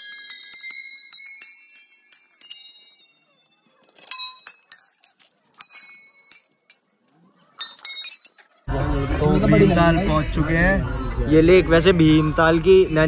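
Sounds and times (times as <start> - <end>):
metal temple bells ringing: 0.0 - 8.7.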